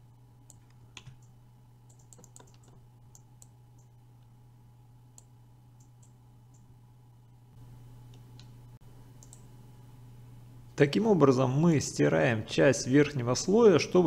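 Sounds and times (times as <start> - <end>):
low electrical hum: 0.0 - 14.0
computer mouse clicks: 1.9 - 3.9, 9.2 - 9.5.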